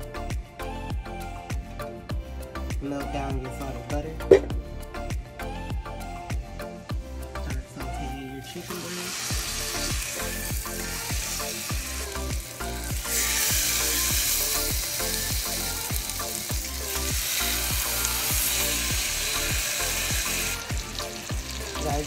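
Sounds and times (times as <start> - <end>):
chicken sizzling in a pan: 8.4 - 22.0.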